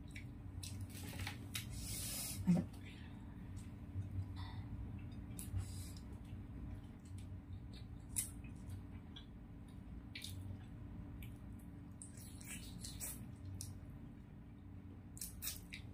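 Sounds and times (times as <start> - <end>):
steady low hum: 0.0 - 15.9
faint wet chewing clicks: 4.9 - 13.8.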